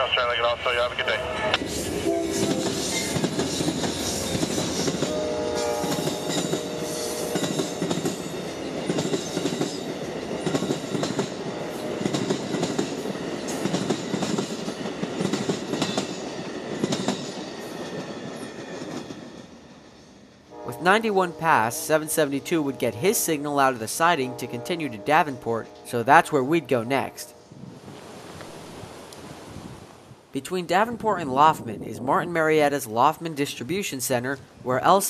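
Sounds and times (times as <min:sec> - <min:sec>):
train rumble: 0:00.0 - 0:29.5
train horn chord: 0:02.0 - 0:03.1, 0:05.0 - 0:07.9, 0:11.7 - 0:12.3, 0:20.5 - 0:27.5.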